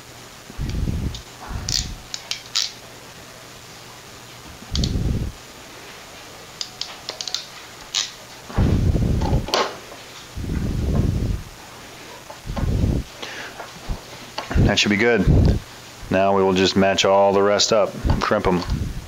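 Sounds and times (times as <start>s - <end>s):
wire crimper clicks and snaps: 0.7s - 2.8s, 4.7s - 5.0s, 6.6s - 8.2s
dull low thumps of handling: 8.5s - 9.5s, 10.4s - 11.5s, 12.4s - 13.1s.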